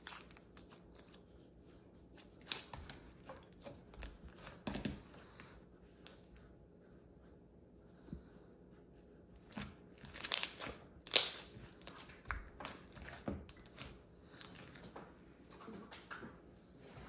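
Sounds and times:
slime kneaded by hand crackling: 0.0 - 6.4, 9.4 - 15.0.

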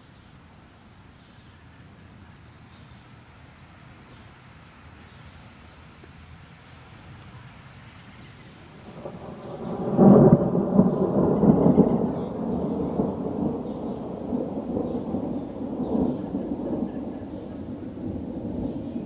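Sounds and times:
thunder rumbling: 8.6 - 19.0.

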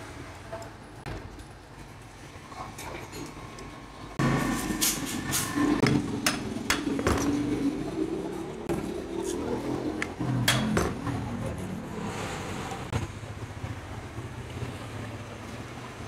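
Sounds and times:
scraping and handling noise: 4.2 - 7.8.

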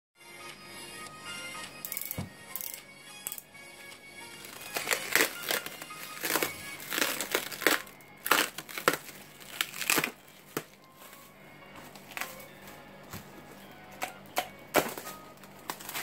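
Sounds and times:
plastic stretch wrap crinkling: 4.3 - 12.9, 14.7 - 16.0.

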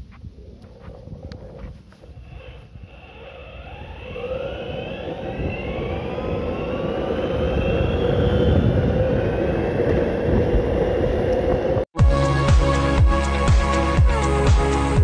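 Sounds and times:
electric motor whine: 2.0 - 11.6.

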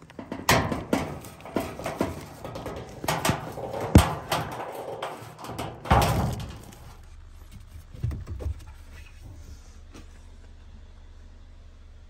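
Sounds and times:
parts knocking: 0.0 - 8.7
scraping clatter: 0.0 - 9.3.

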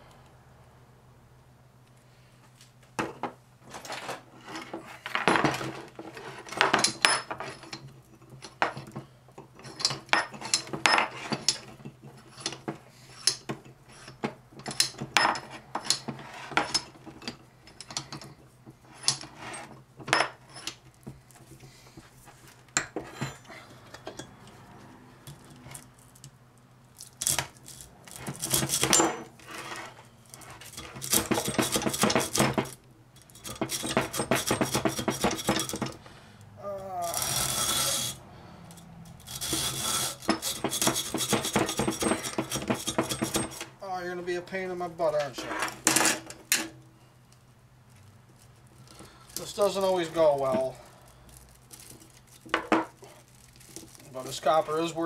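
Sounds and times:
hacksaw cutting through metal: 28.1 - 36.0, 37.0 - 38.2, 38.8 - 43.7
metallic clinks and knocks: 30.2 - 36.0.

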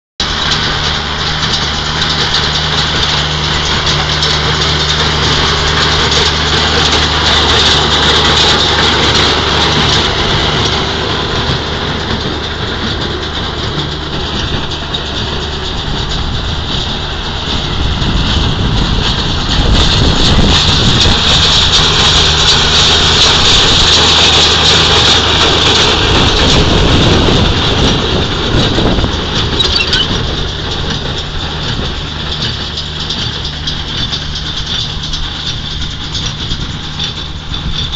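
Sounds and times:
baler engine running: 0.2 - 37.9
baling mechanism clattering: 28.8 - 37.8.

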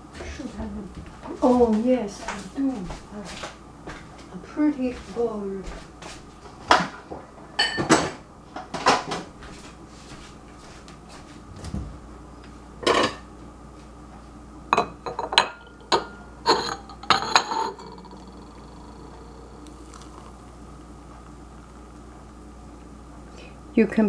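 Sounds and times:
crockery clinking and knocking: 14.8 - 18.9.

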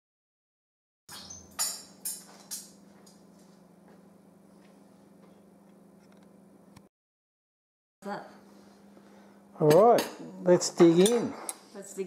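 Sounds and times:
low electrical hum: 1.1 - 6.9, 8.0 - 12.0.

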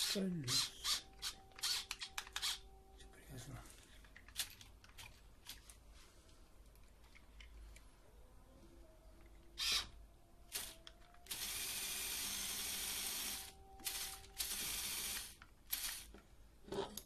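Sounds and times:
toy motor gears whirring: 0.0 - 2.6, 9.6 - 16.1.

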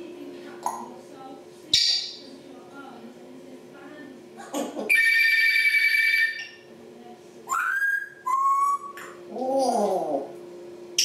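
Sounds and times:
parrot whistling: 7.5 - 9.0.

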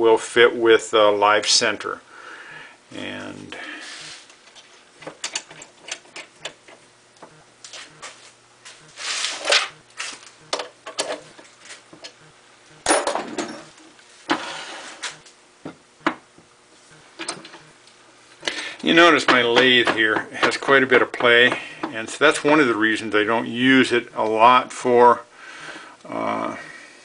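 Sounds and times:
steady low hum: 0.0 - 27.0
metal tooling clicks and scrapes: 4.1 - 6.8.

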